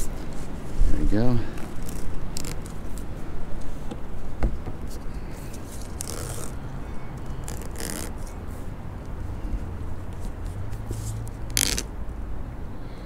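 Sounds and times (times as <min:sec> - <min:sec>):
tape liner peeling: 0:01.5 - 0:03.7, 0:04.8 - 0:08.4, 0:10.1 - 0:11.9.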